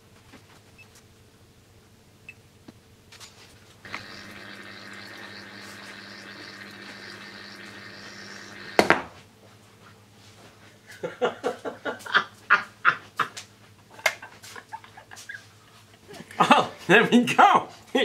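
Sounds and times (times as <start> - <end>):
water boiling with hiss and hum: 3.7 - 9.1.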